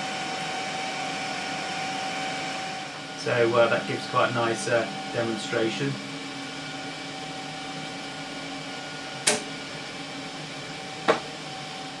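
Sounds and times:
amplifier hum and whir: 0:00.0 - 0:12.0
sharp switch clicks: 0:09.2 - 0:09.5.

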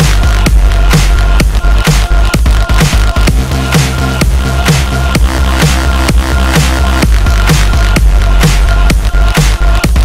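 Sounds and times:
electronic dance music: 0:00.0 - 0:10.0.

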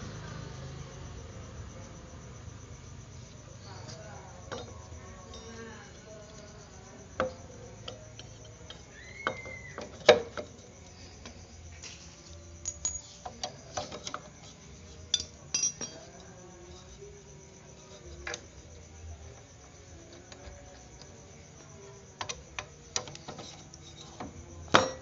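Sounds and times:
metallic clinks and knocks: 0:03.9 - 0:10.8, 0:11.8 - 0:16.4.

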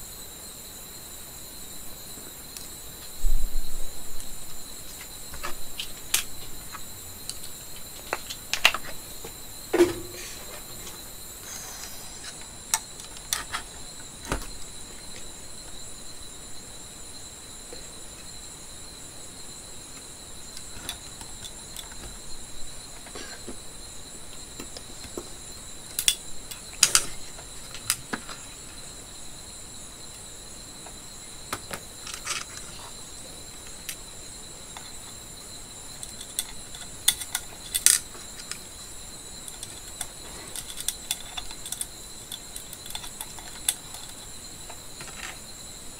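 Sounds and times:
high-pitched whine: 0:00.0 - 0:33.6.

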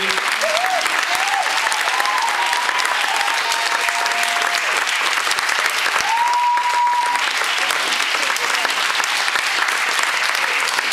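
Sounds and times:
audience clapping: 0:00.0 - 0:10.9
high cheer or whistle: 0:00.4 - 0:04.9, 0:05.9 - 0:07.4.

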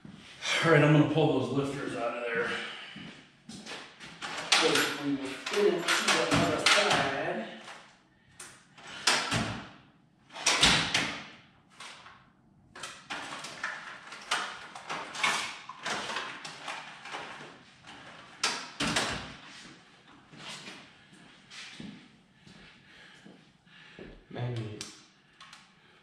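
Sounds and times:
tools clattering: 0:04.1 - 0:07.2.

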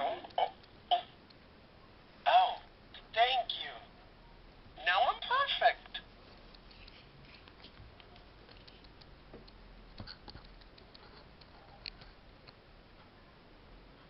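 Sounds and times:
small clicks: 0:06.5 - 0:12.6.

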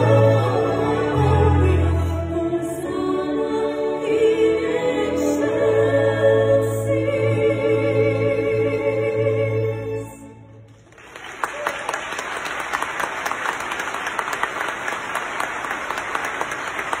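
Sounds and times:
female singers and orchestra chord: 0:00.0 - 0:10.8
audience applause: 0:10.7 - 0:17.0.

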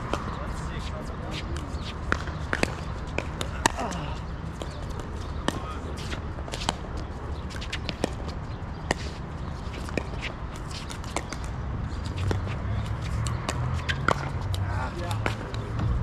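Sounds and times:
ball bouncing on court: 0:01.4 - 0:03.9.

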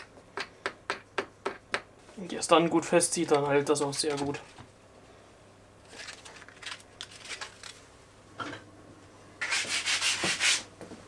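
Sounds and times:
sandpaper rasping on wood: 0:09.4 - 0:10.7.

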